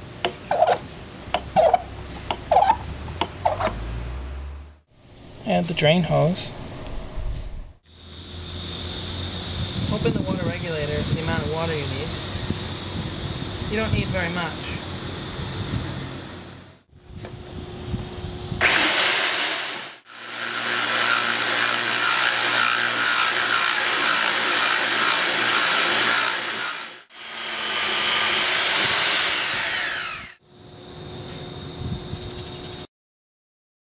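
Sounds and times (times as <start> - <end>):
core drill motor whine: 7.9 - 32.9
drill bit grinding tile: 18.6 - 30.4.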